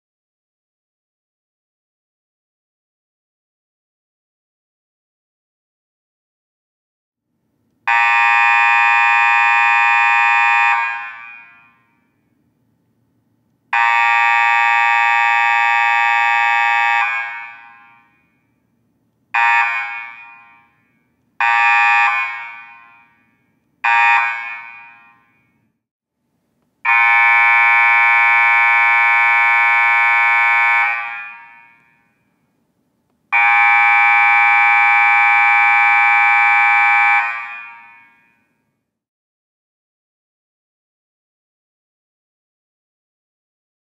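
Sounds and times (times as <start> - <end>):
scoreboard buzzer: 7.9 - 11.7, 13.8 - 18.0, 23.9 - 25.3, 26.9 - 32.0.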